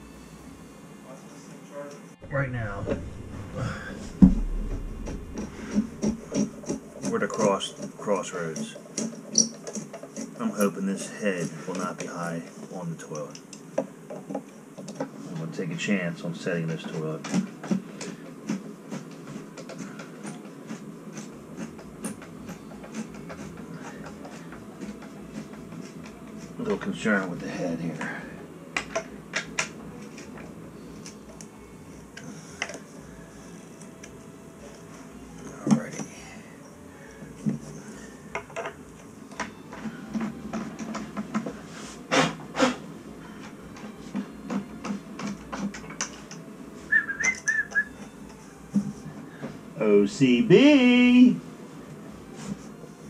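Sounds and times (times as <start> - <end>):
warbling high tone: 2.2 - 6.6
louder knocks: 2.8 - 6.8.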